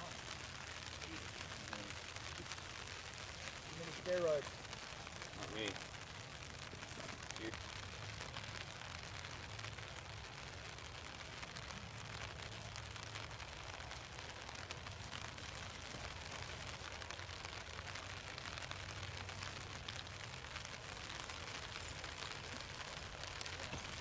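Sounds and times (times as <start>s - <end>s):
outdoor background hiss: 0.0s - 24.0s.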